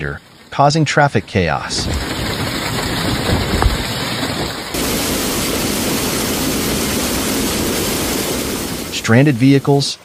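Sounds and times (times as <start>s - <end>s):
torrential rain: 0.0s - 10.0s
wind rumble on microphone: 1.7s - 4.7s.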